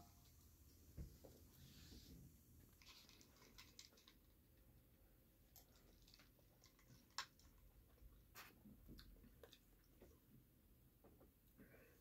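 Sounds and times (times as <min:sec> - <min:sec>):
faint chewing: 0:02.6 - 0:10.4.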